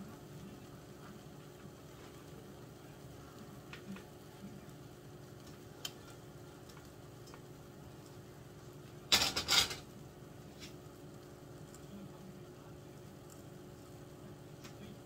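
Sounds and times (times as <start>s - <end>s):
frying pan clattering on burner: 9.1s - 9.9s.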